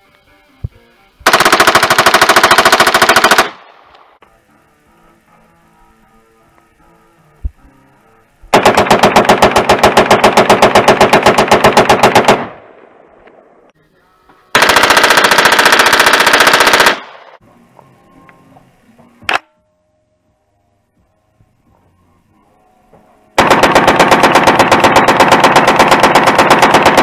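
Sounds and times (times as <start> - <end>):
rapid gunshots: 1.2 - 3.7, 8.5 - 12.7, 14.6 - 17.4, 23.4 - 27.0.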